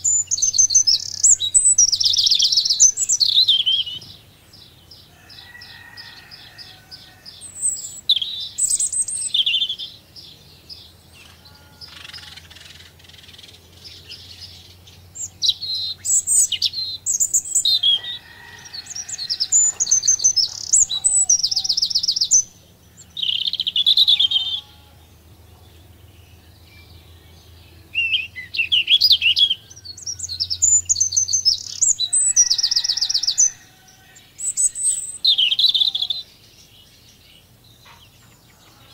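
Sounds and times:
songbirds chirping and trilling: 0:00.0 - 0:38.9.

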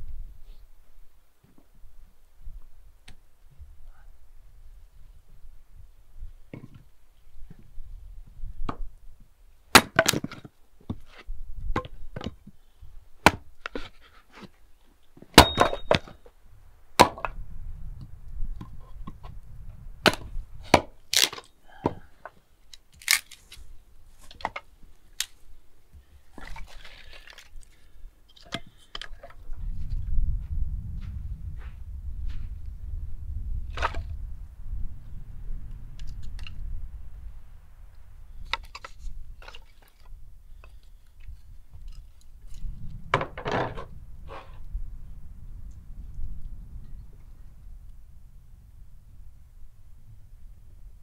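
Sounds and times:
hatchet chopping wood: 0:09.7 - 0:10.4, 0:13.2 - 0:13.5, 0:15.4 - 0:16.0, 0:20.0 - 0:22.0
wood splitting cracks: 0:09.7 - 0:10.5, 0:20.0 - 0:22.0, 0:22.7 - 0:23.6.

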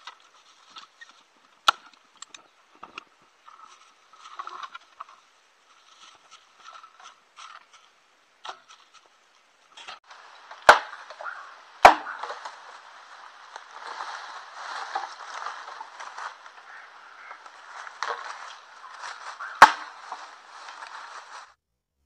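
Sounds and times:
rustling in leaf litter: 0:00.0 - 0:01.5, 0:03.2 - 0:21.6
machete chopping bamboo: 0:10.5 - 0:12.6, 0:19.0 - 0:20.1.

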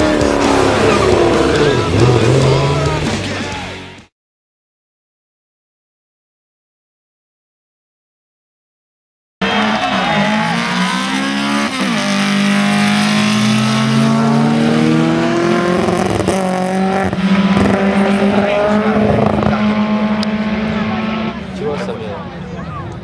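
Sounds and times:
drag racing car accelerating: 0:00.0 - 0:03.4, 0:09.4 - 0:23.0.

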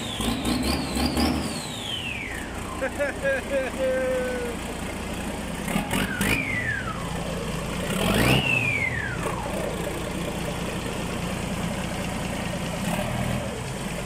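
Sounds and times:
high engine whistle: 0:00.0 - 0:02.8, 0:05.8 - 0:07.2, 0:08.0 - 0:09.4
truck engine revving: 0:00.0 - 0:14.0.

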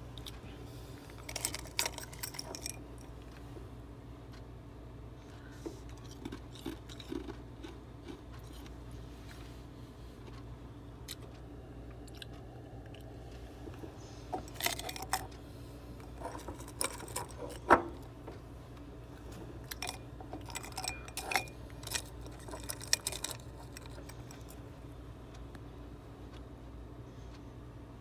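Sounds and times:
frost crunching in glass jar: 0:01.2 - 0:02.8, 0:06.0 - 0:08.2, 0:16.1 - 0:17.6, 0:19.6 - 0:24.2.

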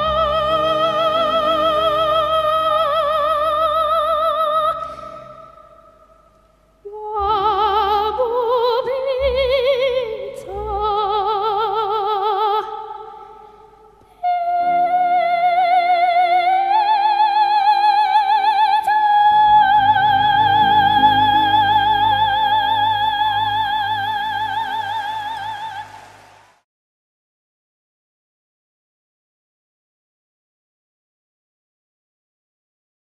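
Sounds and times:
music accompaniment: 0:00.0 - 0:12.7, 0:19.0 - 0:26.6.

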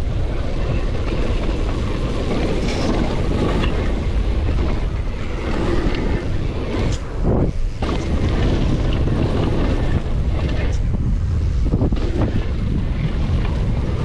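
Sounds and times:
bike rattling: 0:00.0 - 0:14.0
tyres rumbling on loose dirt: 0:00.0 - 0:14.0
wind rushing over microphone: 0:00.0 - 0:14.0.

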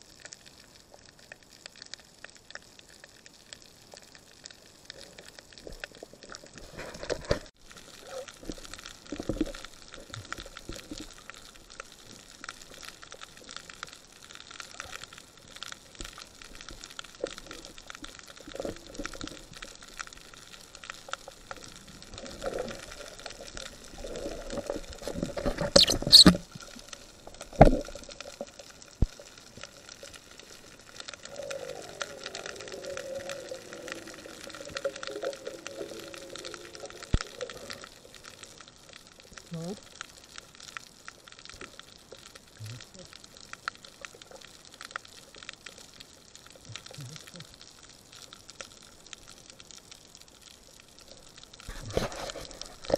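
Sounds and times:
underwater bubbling: 0:00.0 - 0:52.9
underwater fine crackling: 0:00.0 - 0:52.9.

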